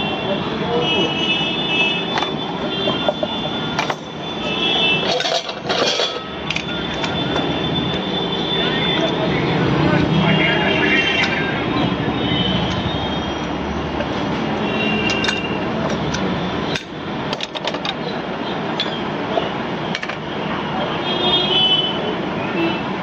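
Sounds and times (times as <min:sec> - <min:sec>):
loud background noise: 0:00.0 - 0:23.0
glass jars and utensils clinking: 0:02.9 - 0:07.2.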